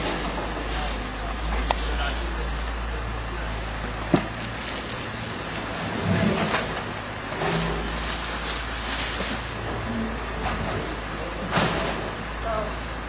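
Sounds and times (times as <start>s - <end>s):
plastic bin bags rustling: 0.0s - 11.8s
vehicle engine rumbling: 0.0s - 13.0s.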